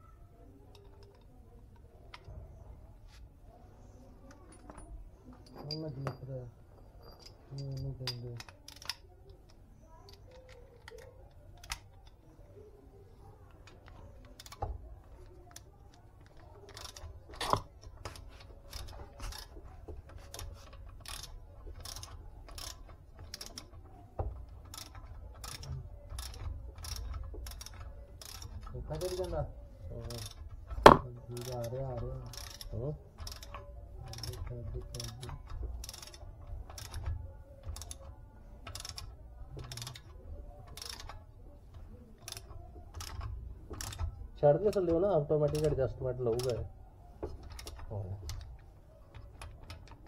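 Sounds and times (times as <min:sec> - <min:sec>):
ratchet wrench clicking: 0:07.2 - 0:09.1, 0:10.1 - 0:12.0, 0:13.8 - 0:14.7, 0:15.5 - 0:41.2, 0:42.2 - 0:45.8, 0:46.4 - 0:46.6, 0:47.3 - 0:50.0.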